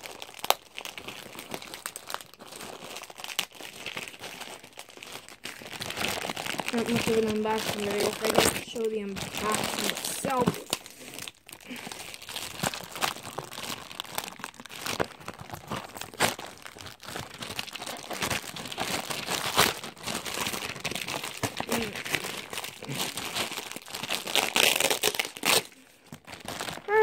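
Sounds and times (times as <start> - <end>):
plastic packaging crinkling: 0.0 - 27.0.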